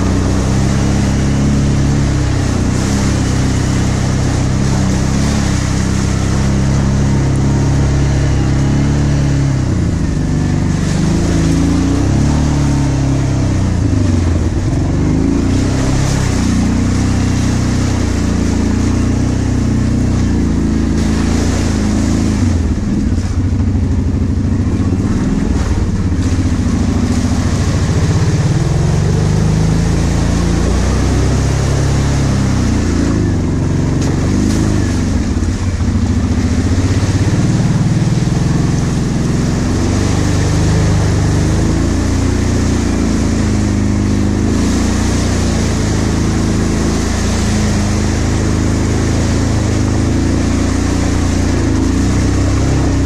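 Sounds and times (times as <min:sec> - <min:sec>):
atv engine revving: 0:00.0 - 0:53.0.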